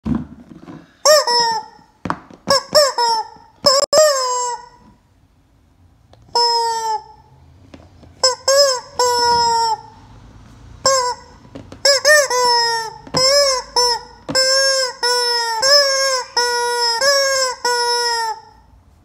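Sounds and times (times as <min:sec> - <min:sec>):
rubber chicken toy squawking: 0:01.0 - 0:05.0, 0:06.3 - 0:07.3, 0:08.2 - 0:10.0, 0:10.8 - 0:18.6.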